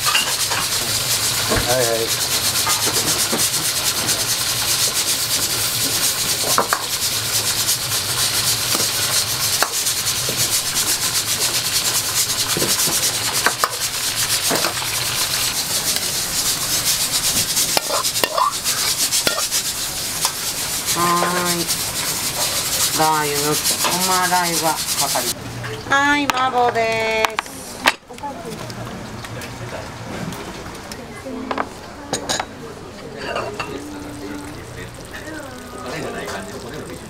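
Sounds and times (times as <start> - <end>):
food sizzling in a wok: 0.0 - 25.4, 33.6 - 37.0
scraping while stirring: 0.0 - 25.4.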